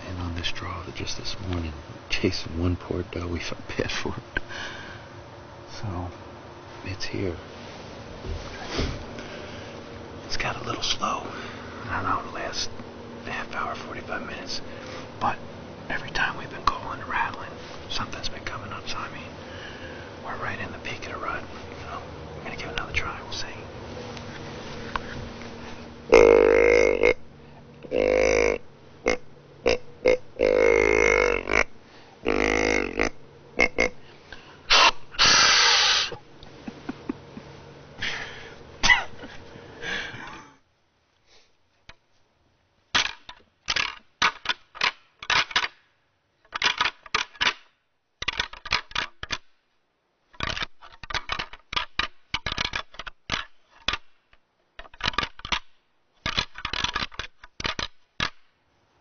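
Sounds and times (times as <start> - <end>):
deer grunt call: 26.1 - 27.2, 27.8 - 34.1.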